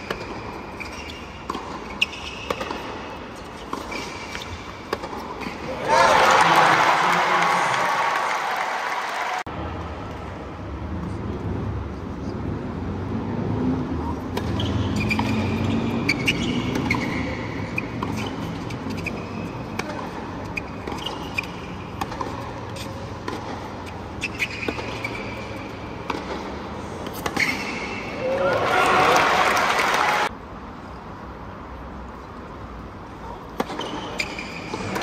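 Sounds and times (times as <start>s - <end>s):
racquets striking ball: 0.0s - 3.0s, 14.3s - 28.1s
shoes squeaking on court: 0.0s - 5.7s, 14.4s - 28.2s, 33.5s - 35.0s.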